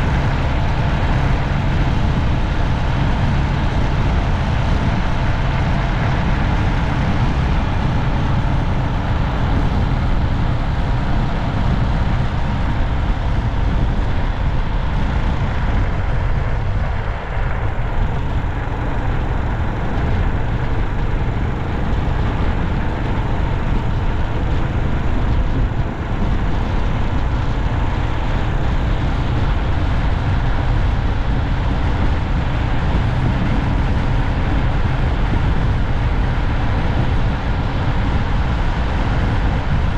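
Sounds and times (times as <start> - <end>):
vehicle road noise: 0.0 - 39.9.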